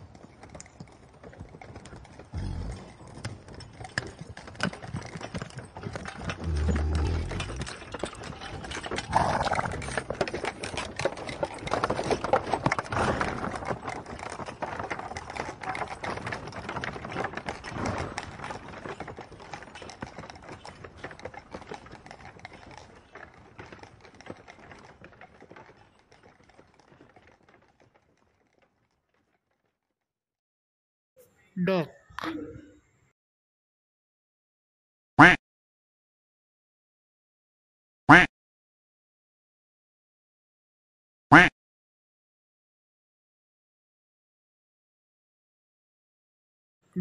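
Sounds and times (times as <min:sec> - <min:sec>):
horse hooves clicking and knocking: 0:00.0 - 0:29.8.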